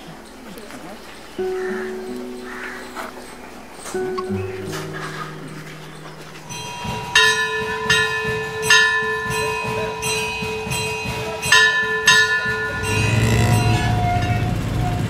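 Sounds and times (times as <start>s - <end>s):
bell ringing: 0.0s - 15.0s.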